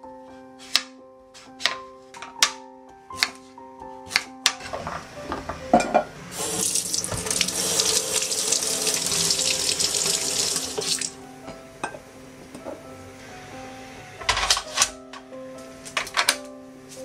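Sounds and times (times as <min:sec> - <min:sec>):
tap water running into sink: 0:06.3 - 0:11.2.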